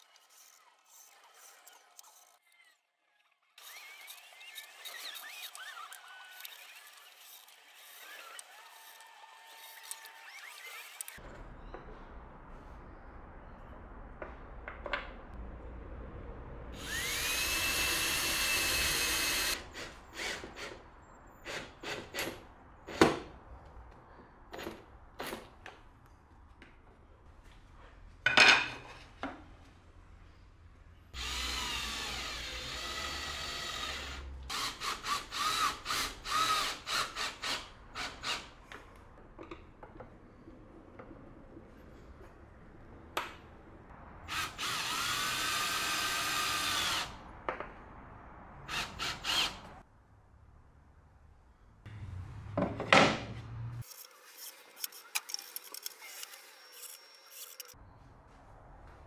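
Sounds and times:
power drill whining: 0:16.8 - 0:20.8, 0:31.2 - 0:38.5, 0:44.3 - 0:47.1, 0:48.7 - 0:49.7.

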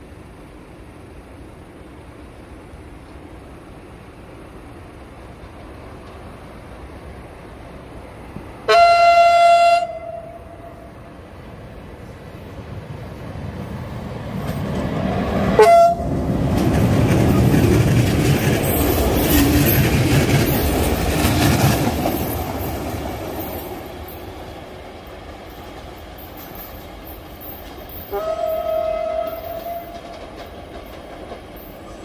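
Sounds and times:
train passing: 0:00.0 - 0:32.0
train horn blast: 0:08.6 - 0:11.0, 0:15.6 - 0:16.2, 0:28.1 - 0:30.1.

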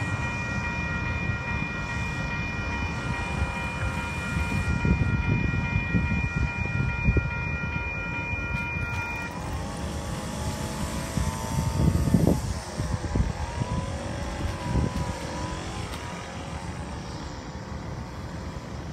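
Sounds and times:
electronic railway crossing bell: 0:00.0 - 0:18.9
road traffic rumbling: 0:00.0 - 0:18.9.

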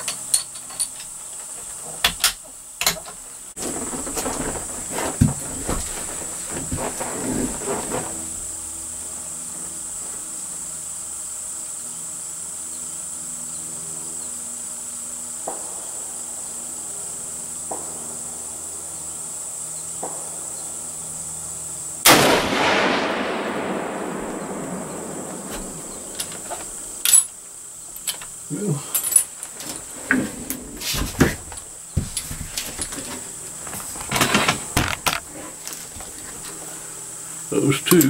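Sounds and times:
high insect drone: 0:00.0 - 0:38.0
rifle shot with echo: 0:22.0 - 0:26.9.

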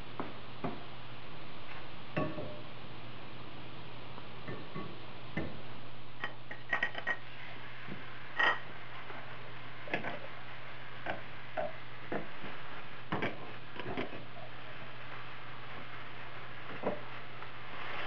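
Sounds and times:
wooden spatula scraping a pan: 0:11.2 - 0:18.0.

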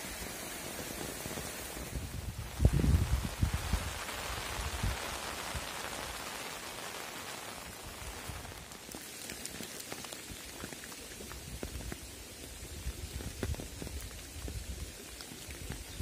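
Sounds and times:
steady rain falling: 0:00.0 - 0:16.0
single raindrops ticking: 0:08.5 - 0:16.0.

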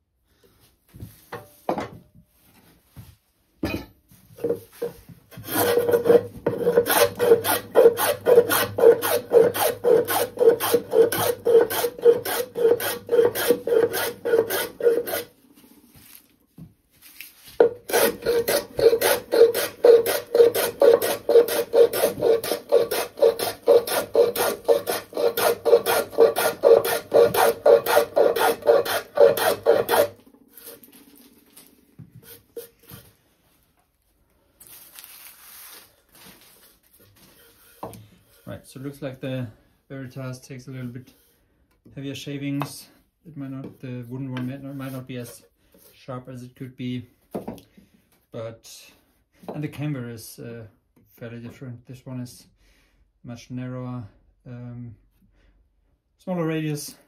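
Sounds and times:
plane rasping across wood: 0:05.3 - 0:15.3, 0:17.6 - 0:30.8
plane knocking on wood: 0:17.6 - 0:30.1.

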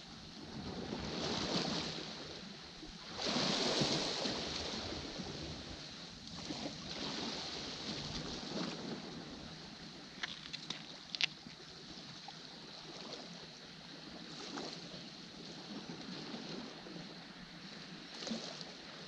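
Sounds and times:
waves washing against rocks: 0:03.1 - 0:12.1.

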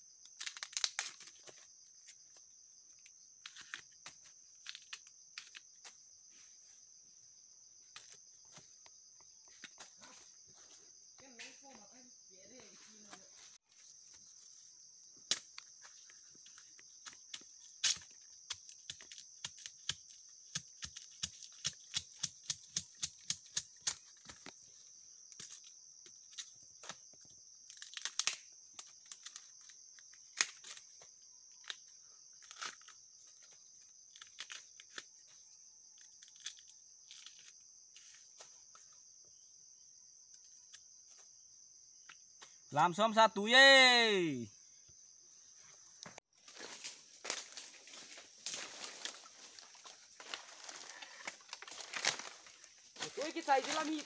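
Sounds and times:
insects buzzing: 0:00.0 - 0:54.0
bamboo sheaths snapping and tearing: 0:00.2 - 0:01.6, 0:03.0 - 0:05.7, 0:15.2 - 0:15.8, 0:17.3 - 0:24.6, 0:26.3 - 0:31.0, 0:31.6 - 0:35.3, 0:35.9 - 0:37.6, 0:48.5 - 0:52.5.

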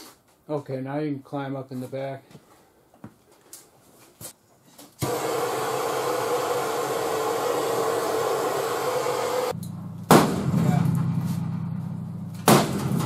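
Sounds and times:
hydraulic pump hissing and humming: 0:05.0 - 0:09.6.

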